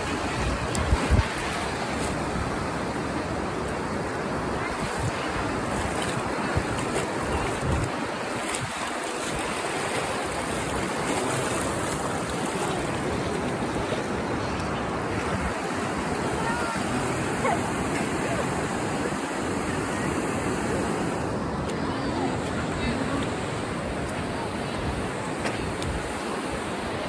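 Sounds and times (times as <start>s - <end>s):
wind buffeting microphone: 0.0s - 21.3s
ocean surf washing ashore: 0.0s - 27.0s.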